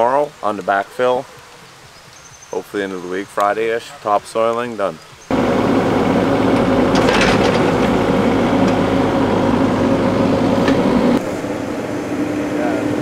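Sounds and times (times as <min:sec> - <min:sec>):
excavator engine and hydraulics: 0:05.3 - 0:13.0.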